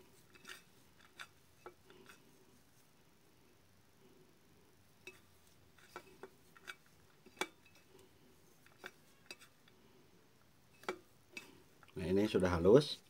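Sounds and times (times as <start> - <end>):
metal spoon scraping enamel plate: 0.1 - 2.3, 5.0 - 8.0, 8.6 - 9.6, 10.7 - 11.6.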